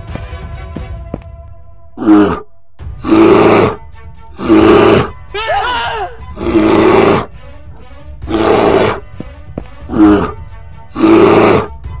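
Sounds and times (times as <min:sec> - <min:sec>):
background music: 0:00.0 - 0:12.0
bear roaring: 0:02.0 - 0:05.2, 0:06.1 - 0:07.4, 0:08.2 - 0:09.1, 0:09.8 - 0:11.8.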